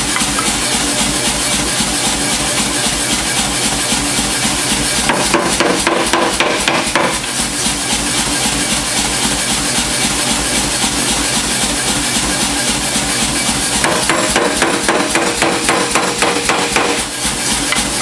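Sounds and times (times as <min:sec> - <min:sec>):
steady machine drone: 0:00.0 - 0:18.0
power hammer striking hot steel: 0:05.0 - 0:07.4, 0:13.8 - 0:18.0.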